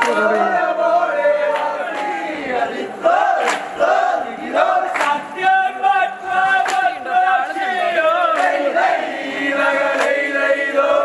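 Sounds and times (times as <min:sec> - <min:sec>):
sharp hand claps: 0:00.0 - 0:00.2, 0:01.5 - 0:02.2, 0:03.4 - 0:03.9, 0:04.8 - 0:05.6, 0:06.5 - 0:07.7, 0:08.3 - 0:08.8, 0:09.9 - 0:10.3
men chanting in unison: 0:00.0 - 0:11.0.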